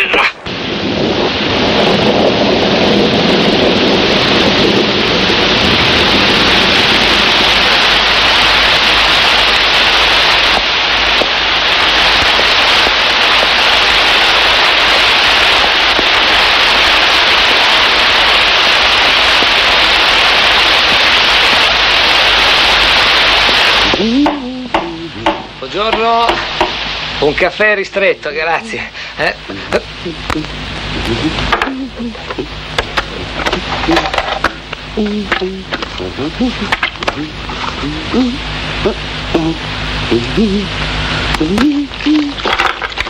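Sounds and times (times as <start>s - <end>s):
heavy rain pouring: 0.0s - 43.0s
low rumble: 0.4s - 22.5s.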